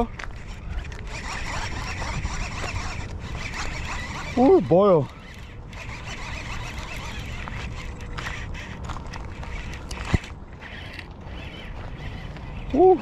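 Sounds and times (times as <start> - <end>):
running footsteps: 7.0 - 12.8.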